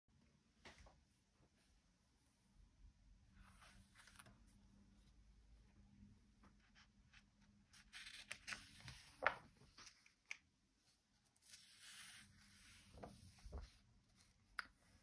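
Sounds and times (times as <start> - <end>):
book pages rustling: 3.4 - 4.5, 7.8 - 10.4, 11.3 - 15.0.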